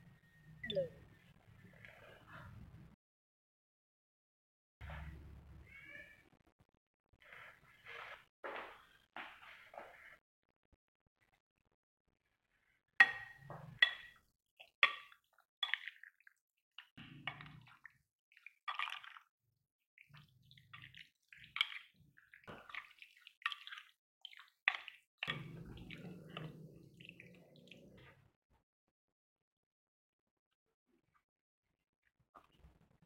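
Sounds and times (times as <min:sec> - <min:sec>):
wet squelching: 0:14.6 - 0:19.3, 0:20.0 - 0:28.0.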